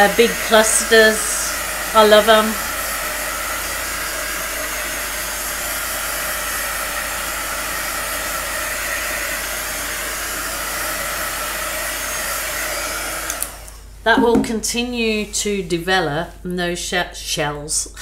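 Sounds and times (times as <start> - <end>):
heat wand blowing air: 0.0 - 13.6.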